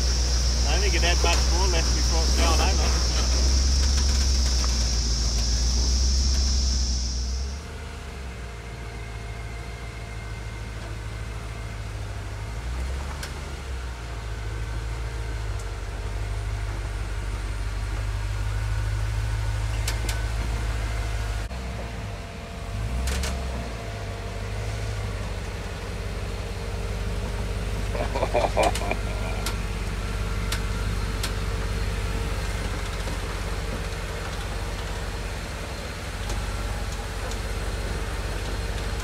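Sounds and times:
engine running at low revs: 0.0s - 39.0s
sharp ticks: 28.0s - 29.6s.

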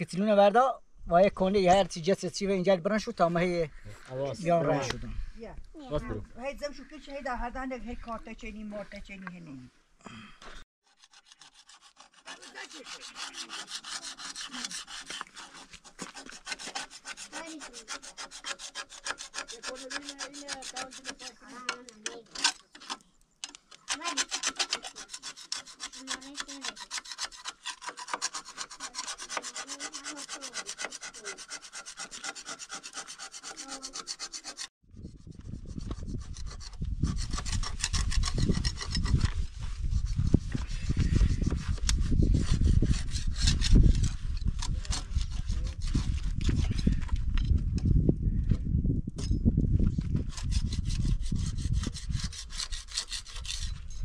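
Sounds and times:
hand tool scraping a surface: 10.8s - 23.1s, 23.7s - 47.2s, 49.9s - 54.0s.

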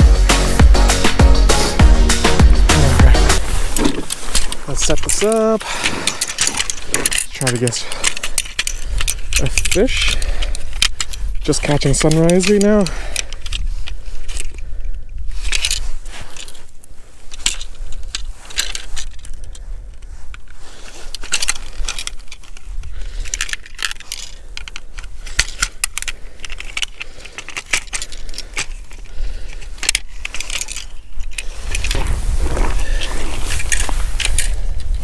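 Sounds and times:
steady low rumble: 0.0s - 5.2s.

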